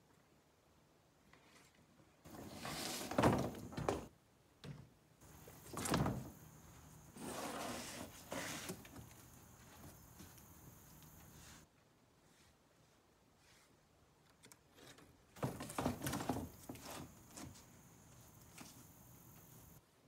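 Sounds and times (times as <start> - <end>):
wood scraping on wood: 7.1 - 11.6.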